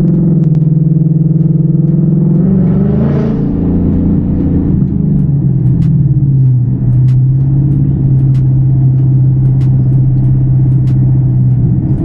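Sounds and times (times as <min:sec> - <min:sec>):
car engine drone: 0:00.0 - 0:12.0.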